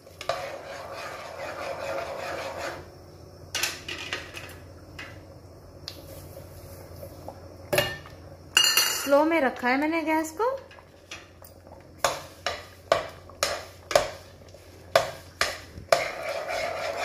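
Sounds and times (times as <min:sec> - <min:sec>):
metal ladle scraping in pot: 0:00.2 - 0:02.9, 0:15.9 - 0:17.0.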